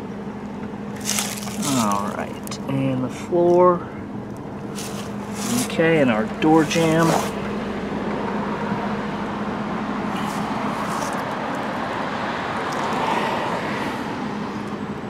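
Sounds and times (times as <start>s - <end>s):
motor vehicle hum: 0.0s - 15.0s.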